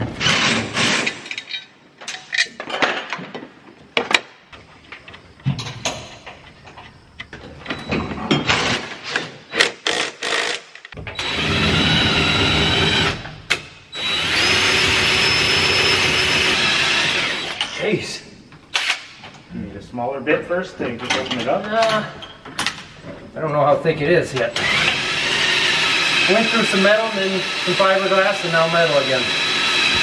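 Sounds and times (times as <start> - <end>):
cordless drill boring into metal: 11.2 - 13.2, 14.0 - 17.6, 24.6 - 30.0.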